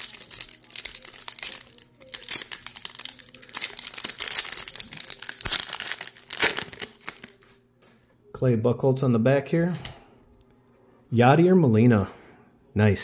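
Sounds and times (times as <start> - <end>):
foil wrapper tearing and crinkling: 0.0 - 7.6.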